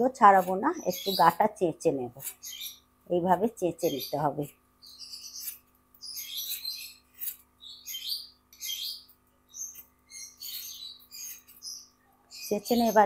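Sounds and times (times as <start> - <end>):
vegetable skin scraped on blade: 6.4 - 7.5.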